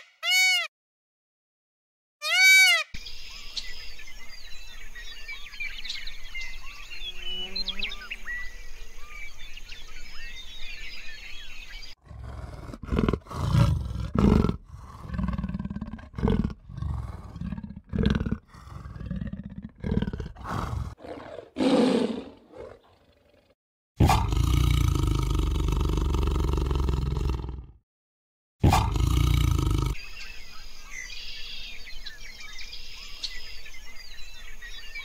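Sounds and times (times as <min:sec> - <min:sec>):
birdsong: 0:02.2 - 0:23.5, 0:28.7 - 0:35.0
big cat growling and roaring: 0:12.0 - 0:27.8, 0:28.6 - 0:30.0.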